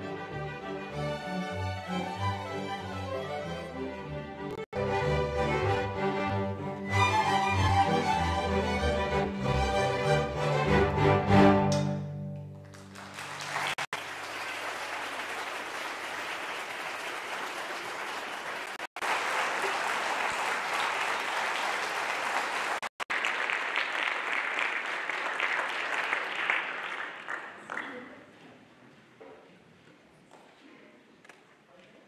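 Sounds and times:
string orchestra chord: 0.0s - 12.8s
audience applauding: 12.5s - 28.2s.

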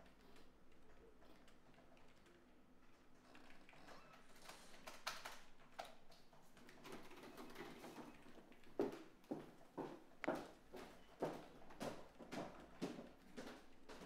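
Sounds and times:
typing on keyboard: 0.1s - 8.0s.

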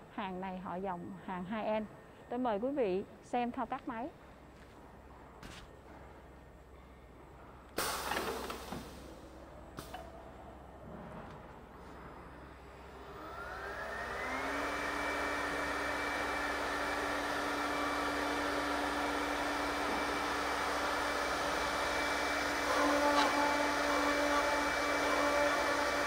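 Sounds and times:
spindle motors whining: 12.7s - 26.0s
cutters cutting wood: 16.3s - 26.0s.

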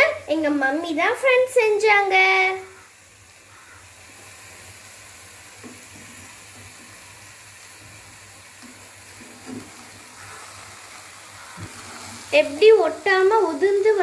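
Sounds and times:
faint hiss: 0.0s - 14.0s
spatula stirring rice: 7.8s - 12.4s.

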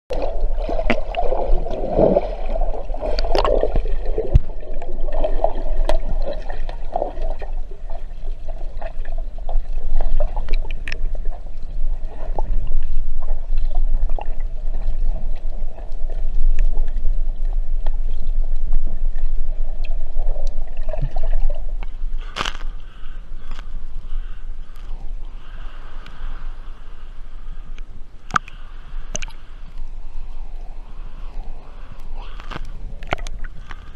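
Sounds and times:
muffled water gurgling: 0.1s - 33.9s
sharp underwater clicks: 3.0s - 7.4s, 19.7s - 25.0s, 27.7s - 29.9s, 31.3s - 33.9s.

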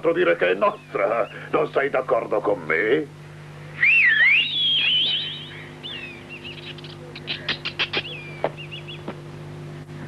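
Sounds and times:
faint low hum: 0.0s - 10.0s
warbling whistle: 3.8s - 6.5s
cartoon squirrel chatter: 6.5s - 8.3s.

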